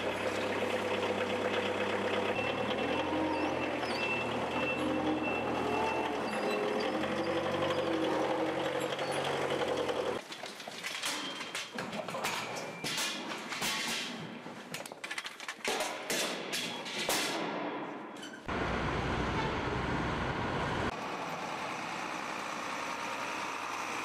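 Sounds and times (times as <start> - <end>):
forklift engine running: 0.0 - 10.2.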